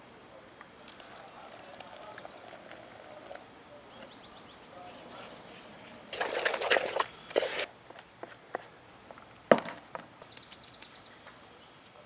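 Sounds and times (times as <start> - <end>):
spoon scraping plastic bowl: 6.2 - 7.7.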